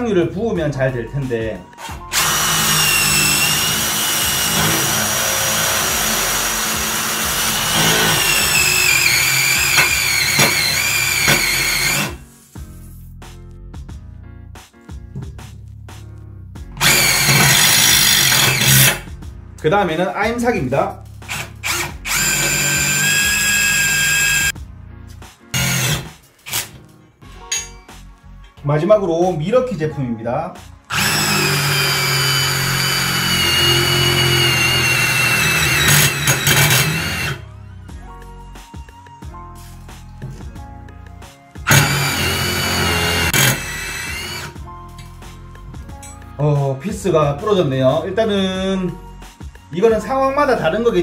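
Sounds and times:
drill motor under load: 0:02.1 - 0:12.2, 0:16.8 - 0:19.0, 0:21.3 - 0:24.5, 0:25.6 - 0:26.7, 0:30.9 - 0:37.4, 0:41.6 - 0:44.6.

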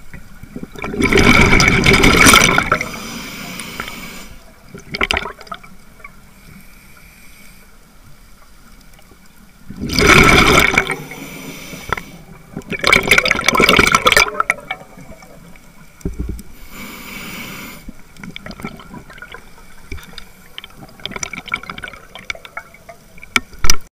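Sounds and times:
exhaled bubbles rushing underwater: 0:00.4 - 0:03.1, 0:04.6 - 0:06.2, 0:09.6 - 0:16.6, 0:18.0 - 0:23.3
faint crackling and ticks: 0:02.7 - 0:09.8, 0:11.0 - 0:13.2, 0:14.0 - 0:23.9.

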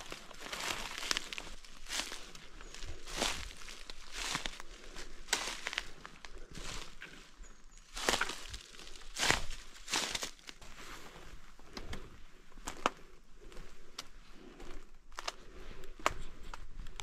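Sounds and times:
footsteps crunching through dry leaves: 0:00.0 - 0:11.4.

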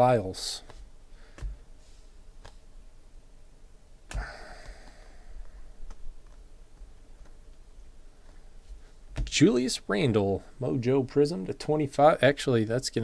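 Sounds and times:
cards clicking: 0:02.4 - 0:02.6.

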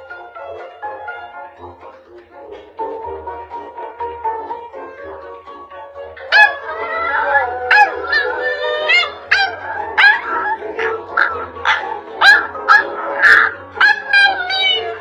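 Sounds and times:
background music: 0:00.0 - 0:15.0
puppy yapping: 0:06.2 - 0:15.0.

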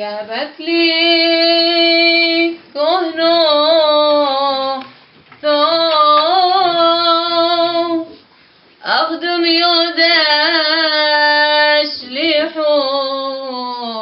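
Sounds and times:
woman singing unaccompanied: 0:00.0 - 0:08.2, 0:08.8 - 0:14.0.

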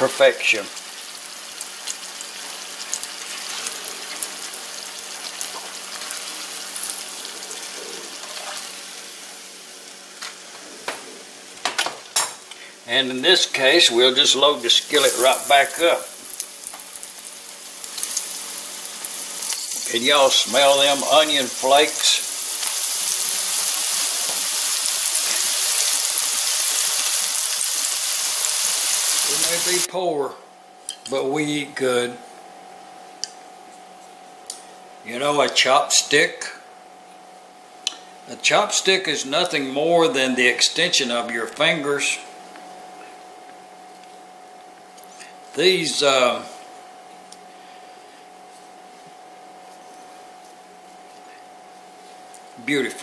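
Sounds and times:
hot oil sizzling and crackling: 0:00.0 - 0:10.6, 0:11.2 - 0:29.9.

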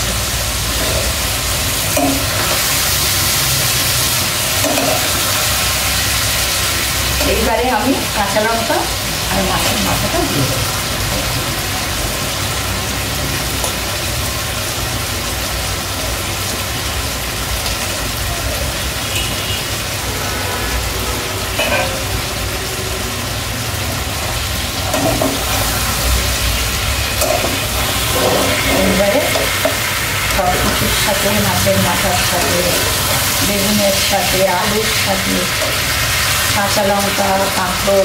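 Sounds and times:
curry sizzling in a pan: 0:00.0 - 0:38.0
metal spatula scraping pan: 0:27.1 - 0:34.1.

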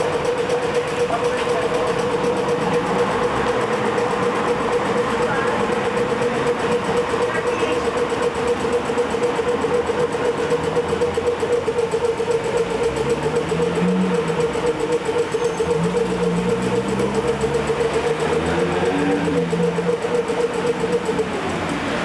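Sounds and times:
vehicles idling in traffic: 0:00.0 - 0:22.0.

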